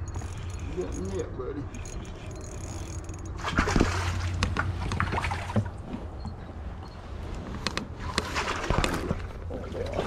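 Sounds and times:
gear knocking and rustling: 0.0s - 6.0s
steady low hum: 0.0s - 8.1s
faint water sounds: 8.0s - 10.0s.

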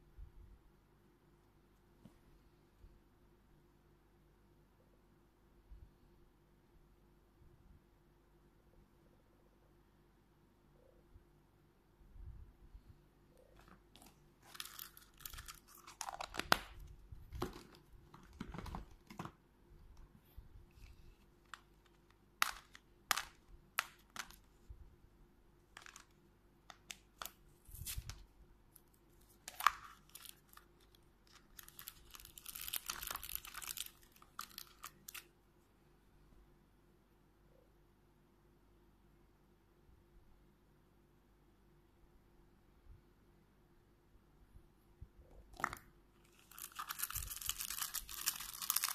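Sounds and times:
plastic wrapper crinkling: 13.6s - 19.4s, 20.7s - 24.5s, 25.7s - 35.3s, 45.6s - 48.9s
plastic toys clicking and knocking: 22.4s - 24.3s.

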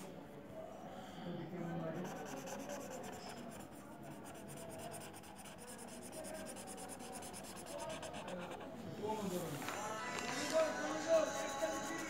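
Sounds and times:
marker scribbling on paper: 2.0s - 8.7s, 11.2s - 12.0s.

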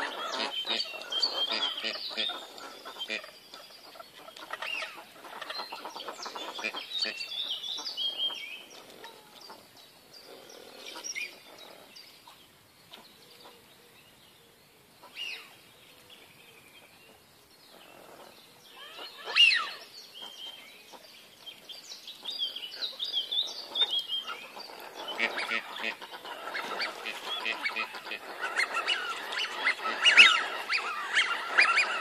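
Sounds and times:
ducks calling on water: 0.0s - 9.6s, 18.0s - 20.6s, 22.7s - 32.0s.

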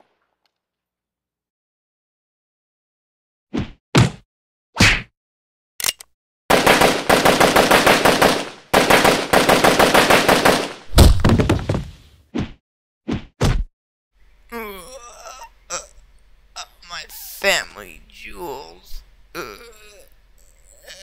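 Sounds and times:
machine-gun fire: 6.5s - 10.9s.

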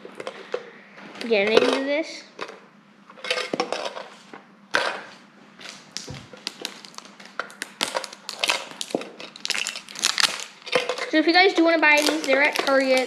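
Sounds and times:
packaging torn open by hand: 5.7s - 10.7s.

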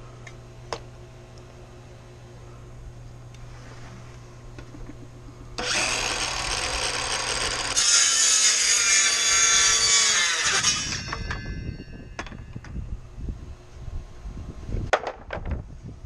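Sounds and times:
circular saw cutting wood: 5.6s - 11.9s.

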